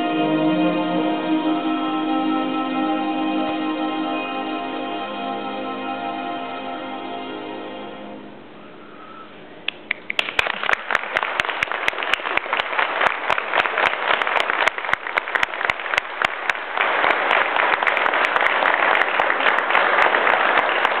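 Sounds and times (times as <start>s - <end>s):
audience applauding: 9.9s - 21.0s.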